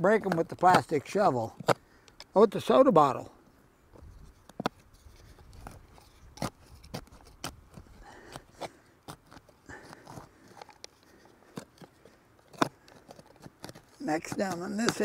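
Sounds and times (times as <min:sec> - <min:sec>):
plastic shovel scraping dirt: 0:04.0 - 0:15.0.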